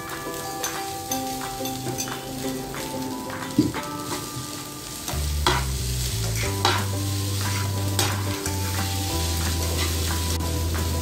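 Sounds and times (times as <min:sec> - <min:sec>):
food sizzling in a frying pan: 0:00.0 - 0:11.0
spatula scraping pan: 0:03.7 - 0:11.0.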